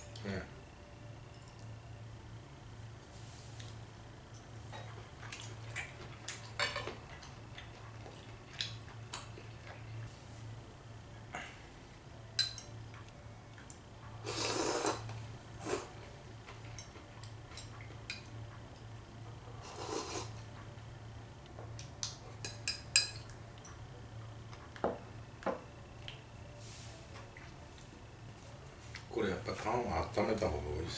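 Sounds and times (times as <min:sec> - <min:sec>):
noisy sips from cup: 0:14.3 - 0:15.0.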